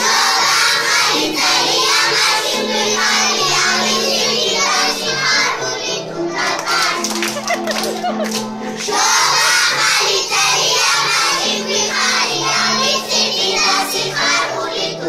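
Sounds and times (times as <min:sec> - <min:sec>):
children singing in unison: 0:00.0 - 0:07.2, 0:08.7 - 0:15.0
instrumental accompaniment with bass: 0:07.1 - 0:09.4.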